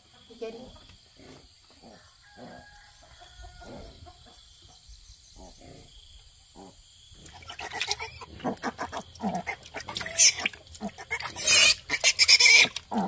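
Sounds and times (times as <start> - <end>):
chickens clucking and crowing: 1.8 - 4.8.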